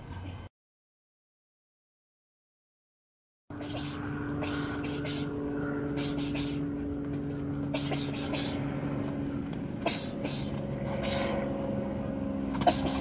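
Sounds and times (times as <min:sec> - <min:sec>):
low mechanical hum: 0:03.5 - 0:13.0.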